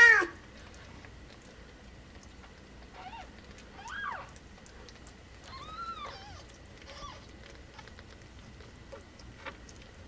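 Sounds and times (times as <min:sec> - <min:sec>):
kitten mewing: 0:00.0 - 0:00.4.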